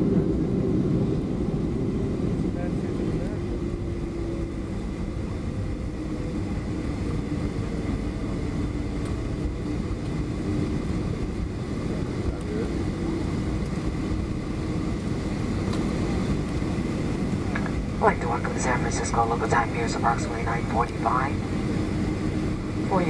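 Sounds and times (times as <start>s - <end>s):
aircraft cabin rumble: 0.0s - 23.0s
faint steady whine: 14.3s - 23.0s.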